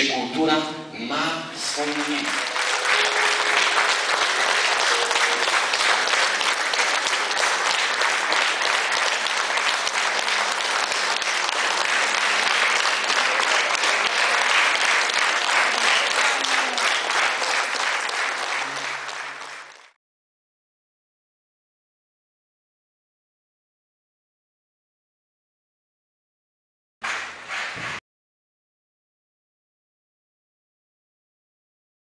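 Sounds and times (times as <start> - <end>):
audience applauding: 1.6 - 20.0, 27.0 - 28.0.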